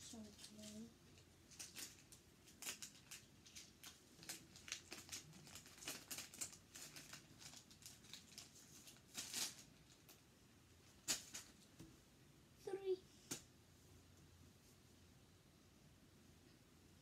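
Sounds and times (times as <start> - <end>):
plastic packet crinkling: 1.5 - 10.2.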